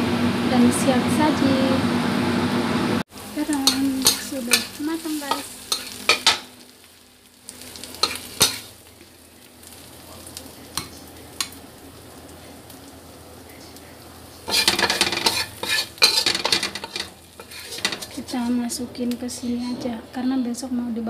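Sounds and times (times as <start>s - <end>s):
faint sizzle: 0.0s - 21.0s
metal spatula scraping a wok: 3.6s - 6.5s, 7.8s - 8.7s, 14.4s - 18.6s.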